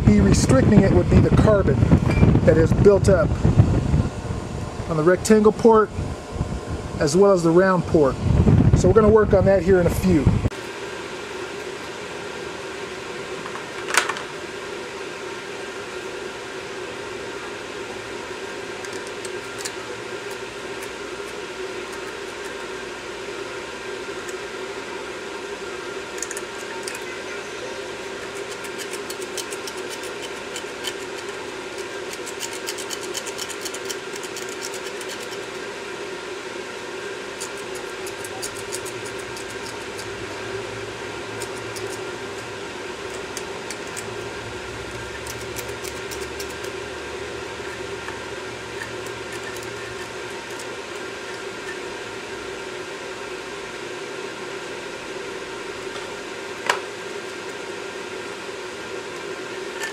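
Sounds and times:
fan humming: 0.0s - 59.9s
pick scraping carbon: 26.0s - 35.9s, 37.0s - 52.4s.

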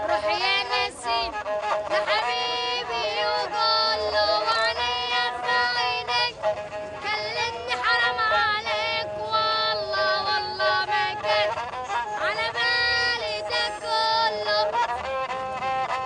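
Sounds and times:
boy singing solo: 7.0s - 11.5s.

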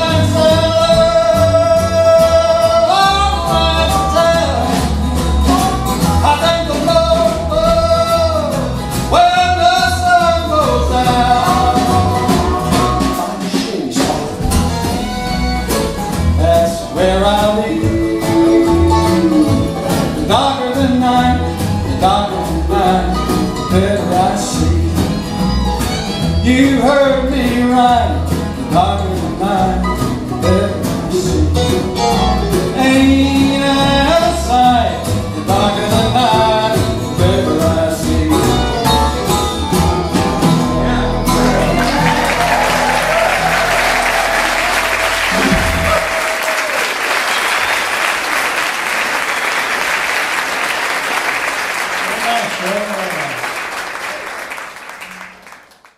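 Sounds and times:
strummed acoustic guitar: 0.0s - 46.3s
upright bass: 0.0s - 46.8s
hand drums: 10.2s - 16.7s, 35.4s - 46.4s
fiddle melody: 14.4s - 28.2s.

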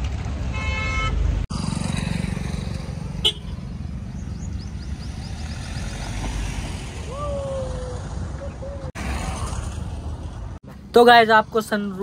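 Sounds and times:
car horn toot: 0.5s - 1.2s, 3.2s - 3.6s.

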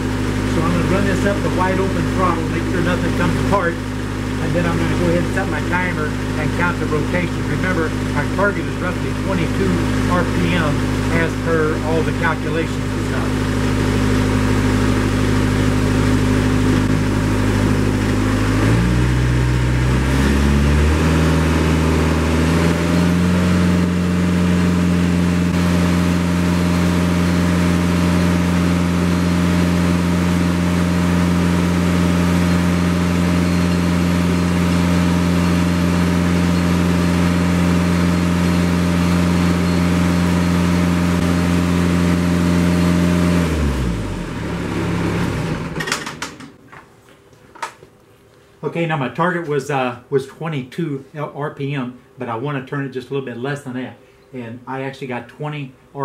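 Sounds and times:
tractor diesel engine revving: 0.0s - 46.6s.

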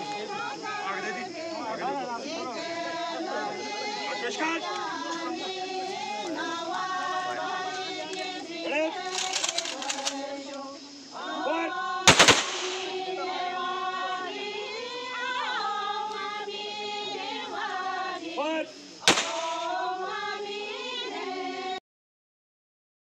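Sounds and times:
sung song: 0.0s - 21.8s
rifle volleys: 9.0s - 10.2s, 12.1s - 13.0s, 19.1s - 19.7s.

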